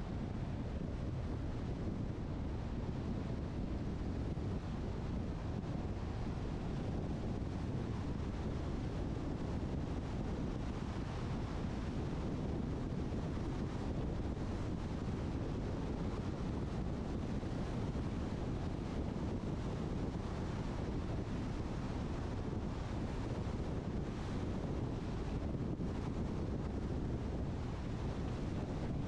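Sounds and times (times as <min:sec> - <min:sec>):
car road and wind noise: 0:00.0 - 0:29.0.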